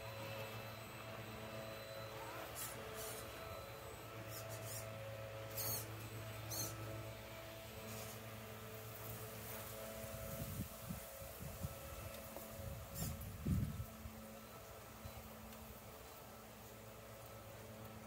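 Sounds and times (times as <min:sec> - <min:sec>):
electric motor whining: 0:00.0 - 0:18.0
high-pitched squeaks: 0:01.6 - 0:07.1.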